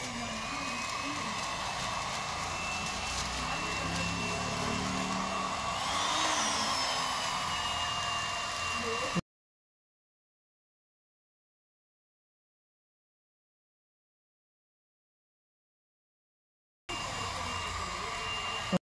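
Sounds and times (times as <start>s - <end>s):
hot air gun blower whirring: 0.0s - 9.2s, 16.9s - 18.8s.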